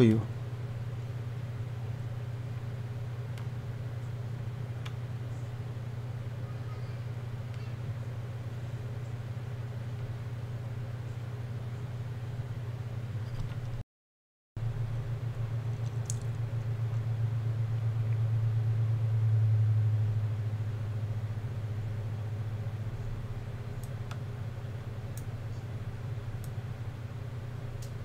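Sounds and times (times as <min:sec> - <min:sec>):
low hum: 0:00.0 - 0:13.8, 0:14.6 - 0:28.0
faint clicks of handled parts: 0:15.7 - 0:17.0.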